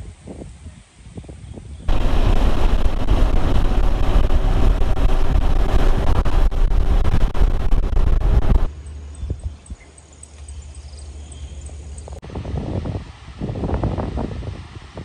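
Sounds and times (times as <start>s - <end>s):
wind buffeting microphone: 0.0s - 8.7s, 12.2s - 15.0s
motorcycle engine running: 1.9s - 8.7s.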